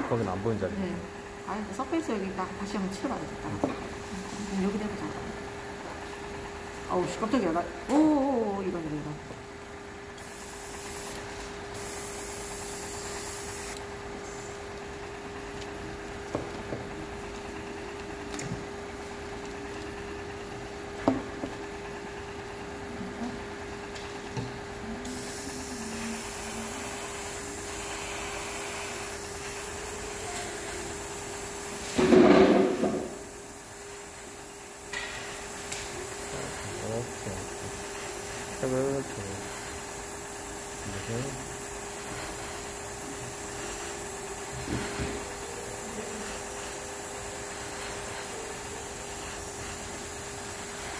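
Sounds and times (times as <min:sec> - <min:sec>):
steady low hum: 0:00.0 - 0:50.9
airbrush spraying hiss: 0:10.2 - 0:13.8, 0:25.0 - 0:50.9.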